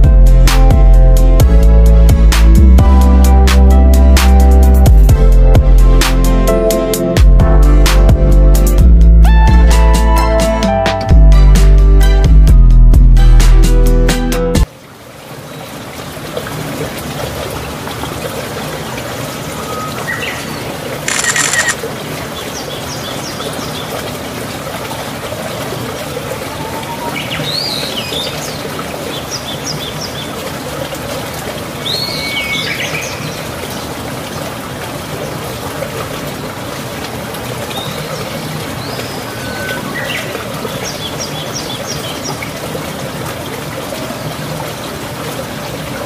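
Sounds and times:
heavy rain pouring: 0:14.6 - 0:46.0.

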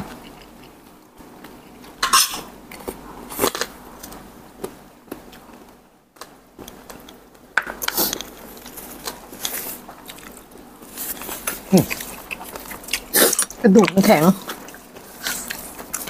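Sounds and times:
cutlery scraping on a plate: 0:02.0 - 0:02.5.

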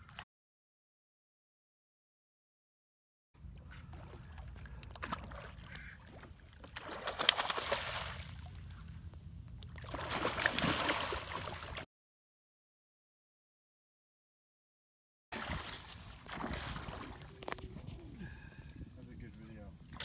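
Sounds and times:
fish splashing at water surface: 0:05.0 - 0:08.6, 0:09.8 - 0:11.8, 0:15.4 - 0:17.5.

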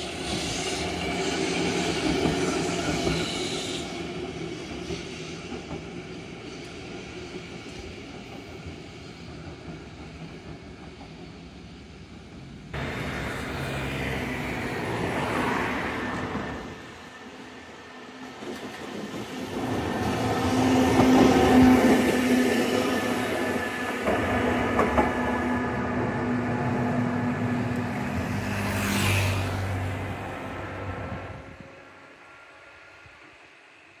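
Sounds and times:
streetcar humming: 0:00.0 - 0:34.0
road traffic noise: 0:12.7 - 0:33.9.

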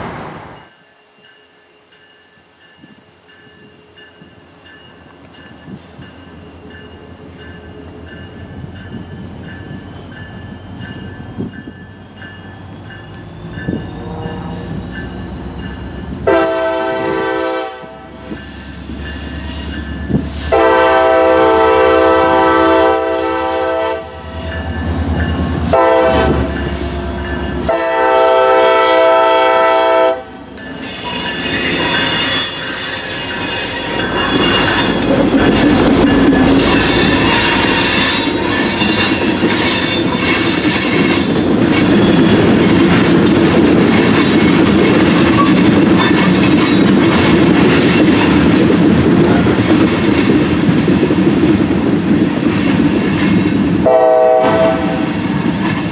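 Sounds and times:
train horn blasts: 0:13.9 - 0:14.8, 0:16.2 - 0:18.2, 0:20.5 - 0:24.5, 0:25.6 - 0:26.7, 0:27.6 - 0:30.4, 0:53.8 - 0:55.2
locomotive engine rumble: 0:30.2 - 0:55.9
train wheels clacking on rails: 0:30.5 - 0:55.9.

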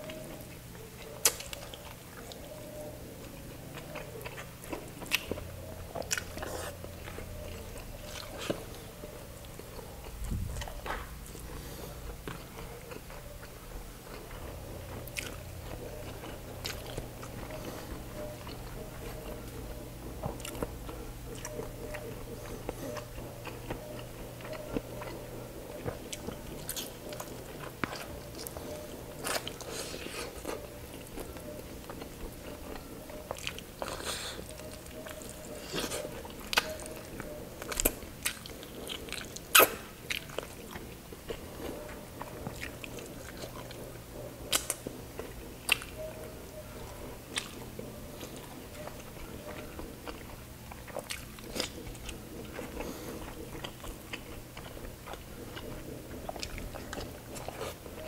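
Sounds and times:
man chewing food: 0:00.0 - 0:58.0.

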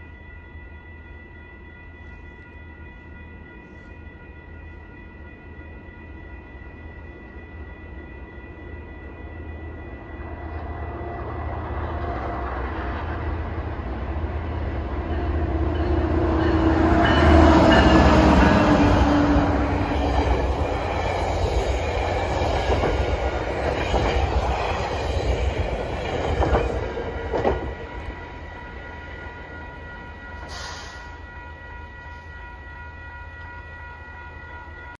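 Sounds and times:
train wheels rumbling on rail: 0:09.7 - 0:32.7
sharp clacks of train wheels: 0:15.1 - 0:28.2.

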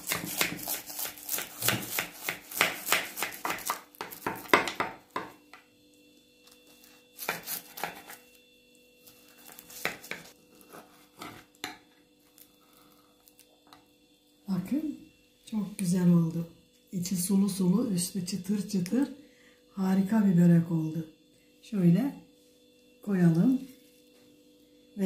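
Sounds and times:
knife cutting crisp pastry: 0:00.0 - 0:04.6, 0:06.4 - 0:08.4, 0:09.0 - 0:11.6.

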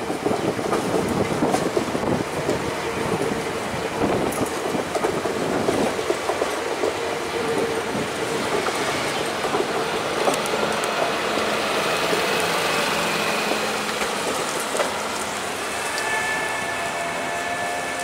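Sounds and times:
train wheels rushing on rail: 0:00.0 - 0:18.0.

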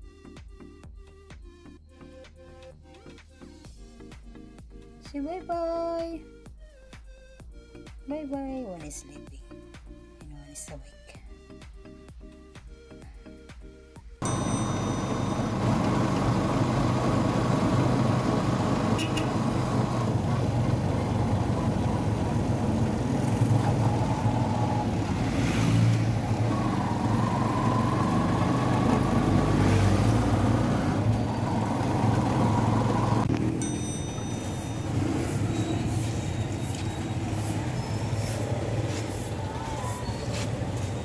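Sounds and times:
faint engine whine: 0:14.2 - 0:41.0
road noise: 0:14.2 - 0:41.0
vehicle engine drone: 0:14.2 - 0:41.0.

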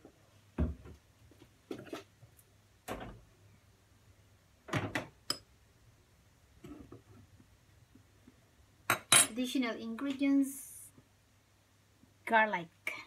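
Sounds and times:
kitchen knocks and thumps: 0:04.7 - 0:05.2.

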